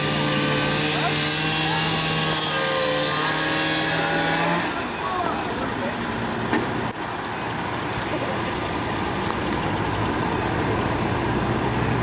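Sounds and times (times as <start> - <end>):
fire truck engine running: 4.7 - 12.0.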